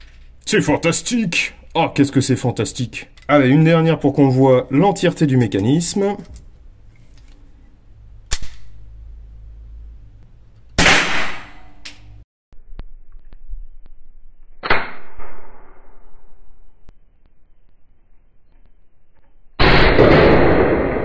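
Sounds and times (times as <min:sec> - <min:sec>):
gunshots ringing out: 0:10.8 - 0:11.8, 0:14.6 - 0:16.2, 0:19.6 - 0:21.0.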